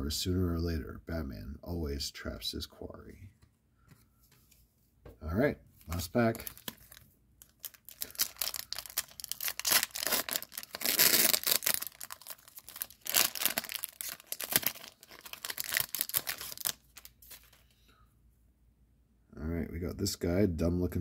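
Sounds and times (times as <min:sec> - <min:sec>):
paper wrapper crinkling and tearing: 0:05.9 - 0:17.7.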